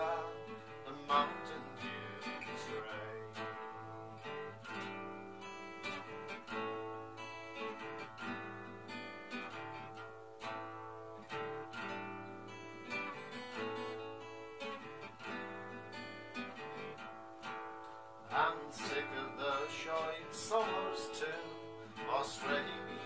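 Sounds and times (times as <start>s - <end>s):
acoustic guitar strumming: 0.0s - 23.0s
mandolin strumming: 0.0s - 23.0s.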